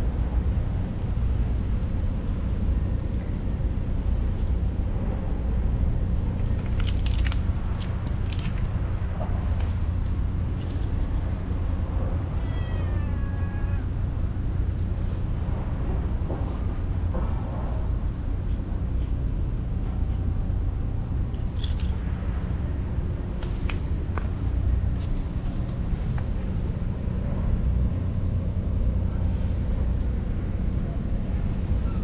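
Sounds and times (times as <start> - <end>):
steady low rumble: 0.0 - 32.0
kitten meowing: 12.4 - 13.9.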